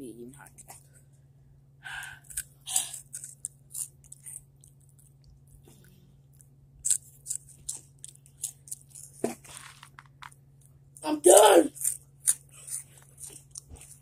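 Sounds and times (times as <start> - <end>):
steady low hum: 0.0 - 14.0
crunching and chewing chips: 2.2 - 14.0.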